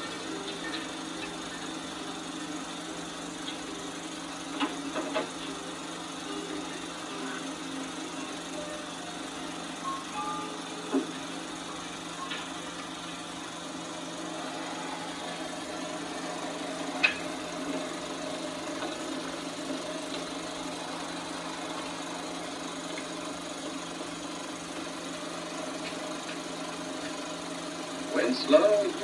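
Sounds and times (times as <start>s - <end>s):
film projector whirring: 0.0s - 29.0s
soundtrack hiss and hum: 0.0s - 29.0s
projector click: 16.0s - 20.8s.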